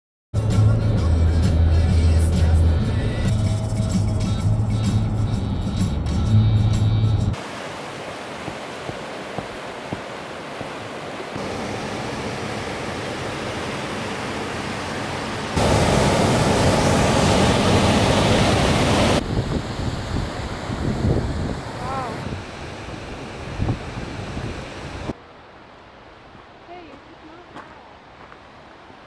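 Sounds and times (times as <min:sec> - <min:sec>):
river rushing over rapids: 0:07.4 - 0:29.0
wind buffeting microphone: 0:15.6 - 0:25.1.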